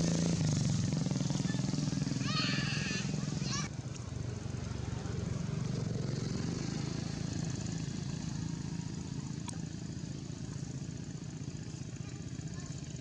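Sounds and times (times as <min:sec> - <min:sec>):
motor engine rumbling: 0:00.0 - 0:13.0.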